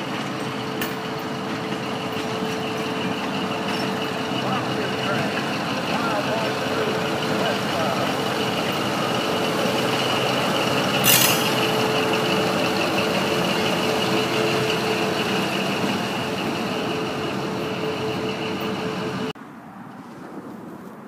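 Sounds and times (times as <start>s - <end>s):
diesel locomotive engine running: 0.0s - 19.4s
train wheels on rails: 0.0s - 19.4s
sharp metal clank: 11.0s - 11.6s.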